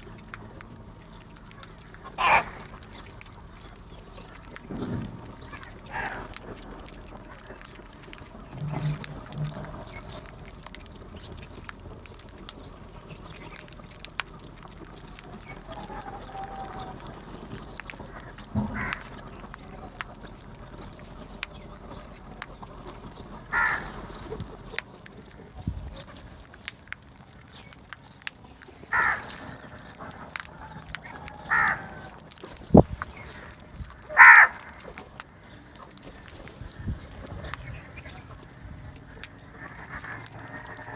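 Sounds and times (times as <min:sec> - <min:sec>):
crows cawing: 0:01.6 - 0:03.0, 0:05.0 - 0:06.6, 0:15.3 - 0:17.4, 0:18.1 - 0:20.1, 0:23.4 - 0:24.4, 0:28.8 - 0:32.4, 0:33.2 - 0:35.0.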